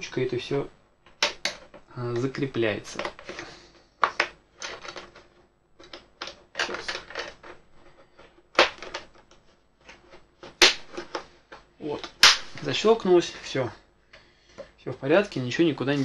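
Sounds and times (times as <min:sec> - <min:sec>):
plastic and glass clicks and rattles: 0:04.0 - 0:07.6.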